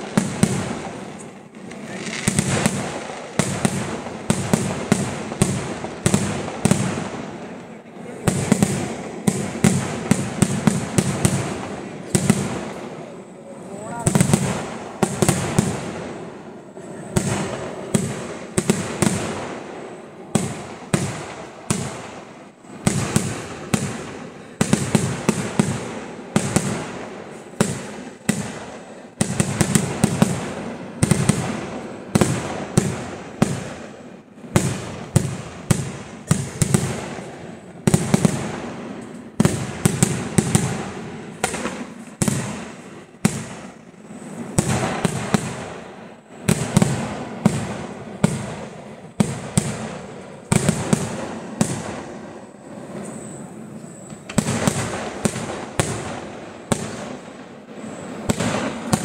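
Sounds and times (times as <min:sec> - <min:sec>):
fireworks bangs echoing: 0:00.0 - 0:59.0.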